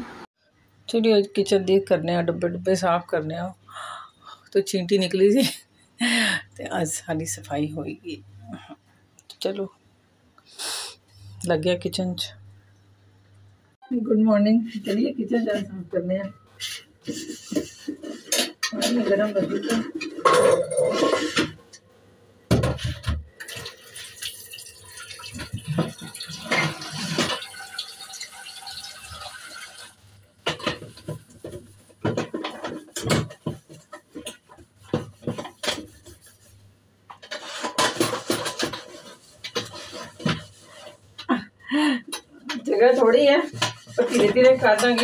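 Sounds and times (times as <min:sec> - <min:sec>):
steel pots knocking and clinking: 0:22.5 - 0:36.0, 0:43.6 - 0:45.0
liquid pouring: 0:23.4 - 0:30.0.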